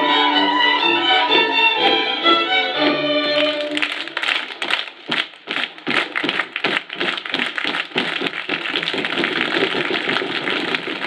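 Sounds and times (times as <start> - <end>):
crowd clapping and applause: 3.3 - 11.0.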